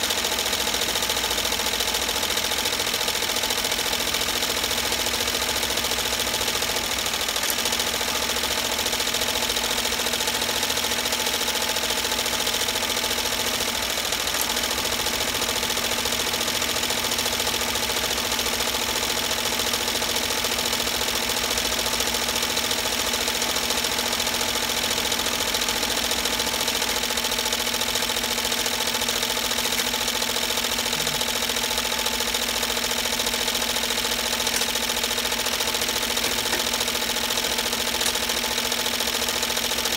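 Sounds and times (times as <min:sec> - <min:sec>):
embroidery machine needle clatter: 0:00.0 - 0:39.9
motor hum: 0:27.6 - 0:39.5.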